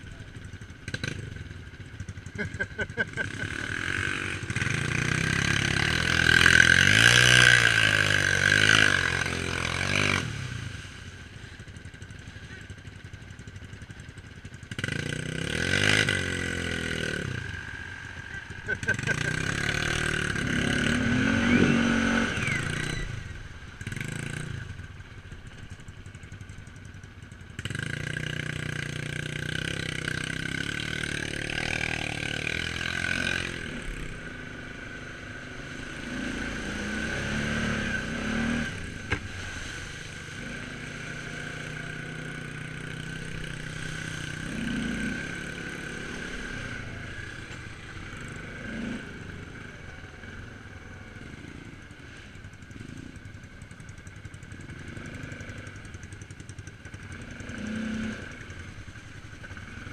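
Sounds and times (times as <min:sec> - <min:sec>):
quad bike engine revving: 0:00.0 - 0:59.9.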